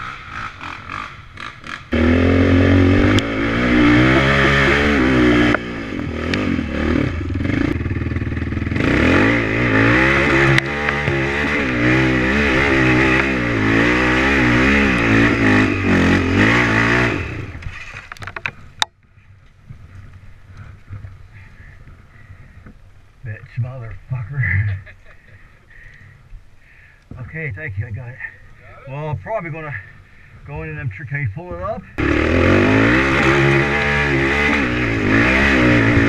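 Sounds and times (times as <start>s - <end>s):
atv engine revving: 0.0s - 18.6s, 31.9s - 36.0s.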